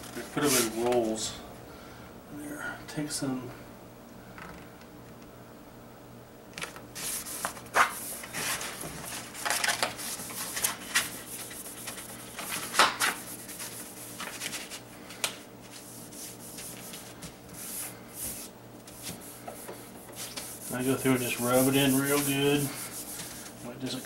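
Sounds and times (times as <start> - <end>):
vinyl sheet rustling and crackling: 6.6 - 24.0
hands rubbing sheet flat: 7.0 - 14.8, 15.6 - 24.0.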